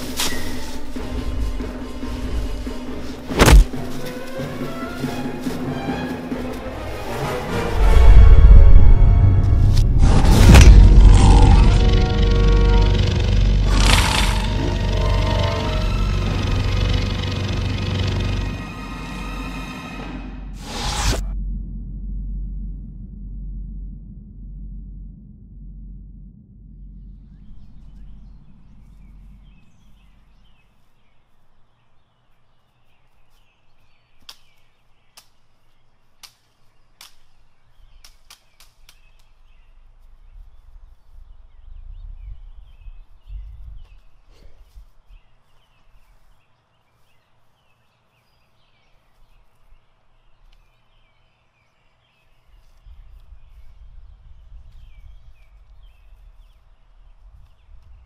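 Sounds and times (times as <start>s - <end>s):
low rumble: 7.5s - 30.7s, 52.8s - 58.0s
birds chirping: 11.0s - 19.5s, 26.6s - 58.0s.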